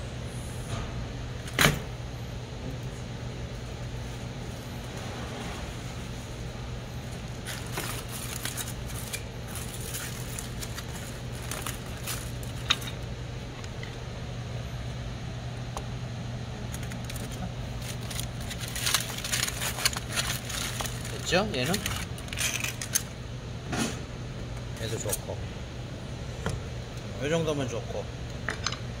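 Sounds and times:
steady low hum: 0.0s - 29.0s
aluminium foil crinkling and tearing: 7.2s - 13.0s, 16.6s - 23.2s.

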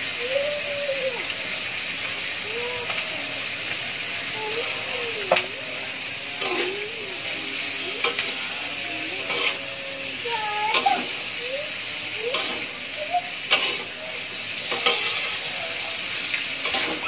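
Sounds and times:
food sizzling in oil in a wok: 0.0s - 17.0s.

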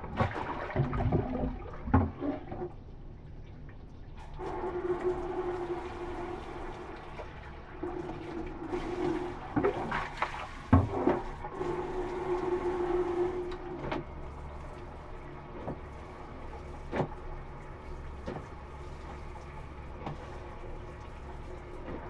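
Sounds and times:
knocks and splashes: 0.0s - 2.8s, 6.9s - 11.7s, 13.7s - 22.0s
steady hum: 0.0s - 22.0s
water spraying into plastic basin: 7.9s - 13.4s.

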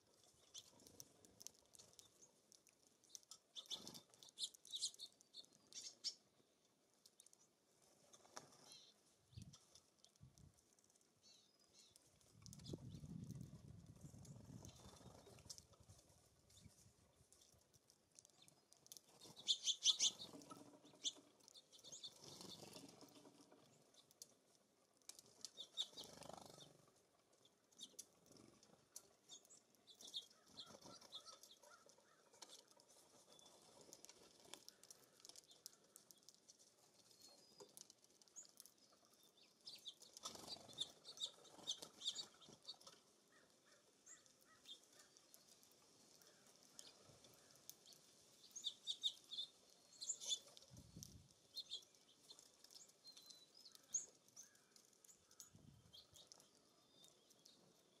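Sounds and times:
songbirds chirping: 0.0s - 58.0s
wings fluttering: 3.0s - 6.2s, 12.0s - 17.6s, 18.2s - 24.1s, 25.0s - 26.9s, 27.8s - 56.6s.

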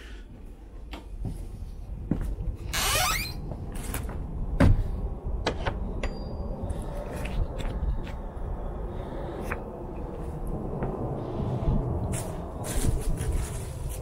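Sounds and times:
door scraping open: 2.7s - 3.4s.

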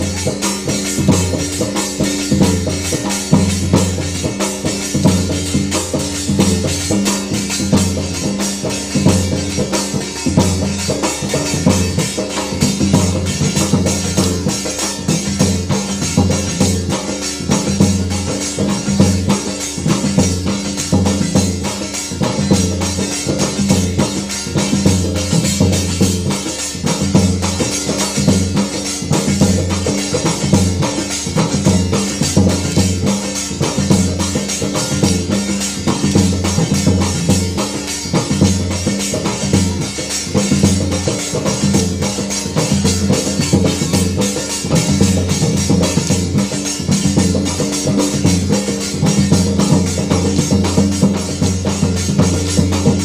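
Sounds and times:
driving drum beat: 0.0s - 53.0s
jingling percussion: 0.0s - 53.0s.

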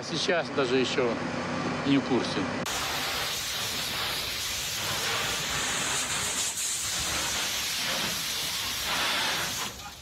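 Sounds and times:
hose nozzle spraying water: 2.7s - 10.0s.

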